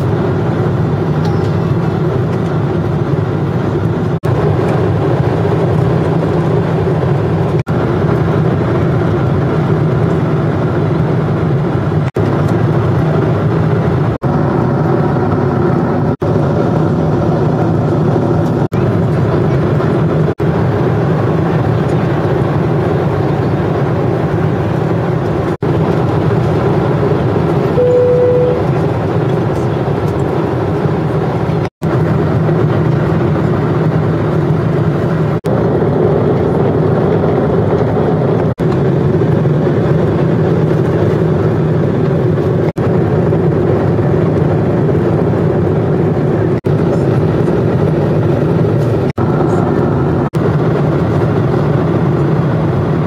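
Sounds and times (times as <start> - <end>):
jet engine cabin drone: 0.0 - 53.0
short steady tone: 27.8 - 28.8.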